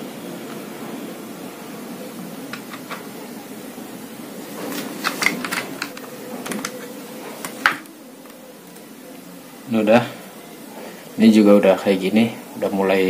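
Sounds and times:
low background noise: 0.0s - 13.0s
clicks and taps of tools: 5.0s - 8.8s.

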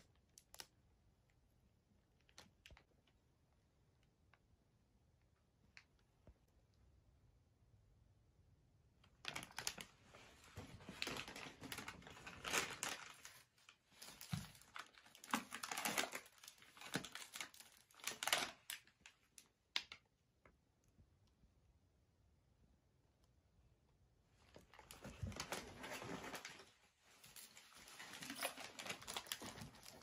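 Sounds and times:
packaging crumpling and rustling: 9.2s - 19.5s, 24.5s - 30.0s.

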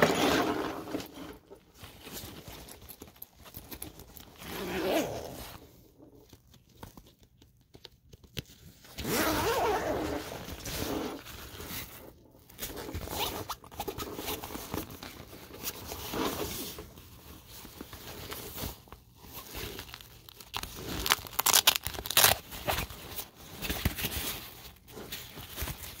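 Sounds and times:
straps and zipper scraping: 0.0s - 6.3s, 8.9s - 17.0s, 17.7s - 26.0s
backpack fabric rustling: 0.1s - 6.4s, 8.9s - 12.0s.

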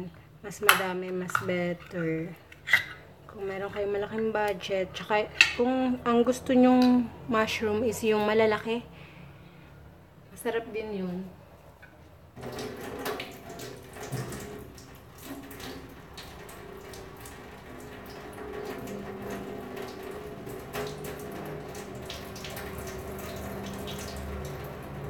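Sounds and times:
tap water splashing into sink: 12.4s - 25.0s.

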